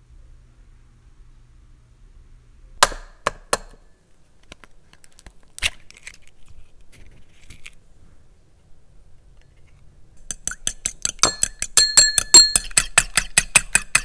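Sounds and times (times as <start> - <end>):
eggshell clicks and taps: 10.2 - 14.0
egg knocking on ceramic bowl: 10.3 - 14.0.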